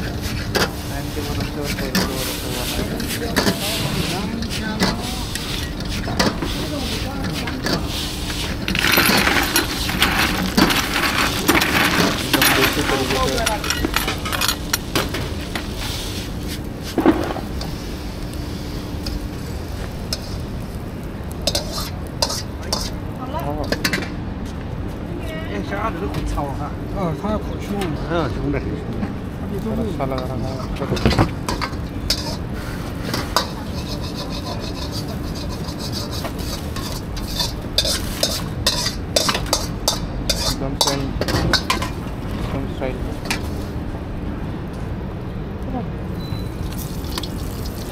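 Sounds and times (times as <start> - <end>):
charcoal and metal pail clinking: 0.0 - 17.8, 18.9 - 24.1, 29.8 - 43.7, 46.2 - 47.9
frying sizzle: 0.0 - 24.2, 27.4 - 44.3, 46.1 - 47.9
ladle clanking in wok: 30.6 - 42.5.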